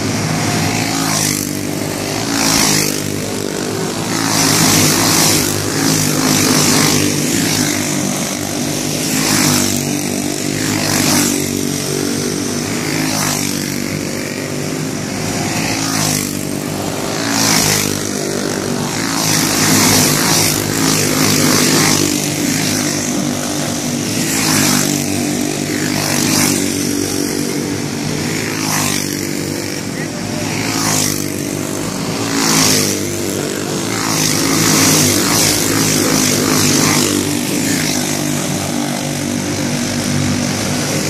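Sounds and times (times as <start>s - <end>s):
racing kart engines: 0.0s - 41.0s.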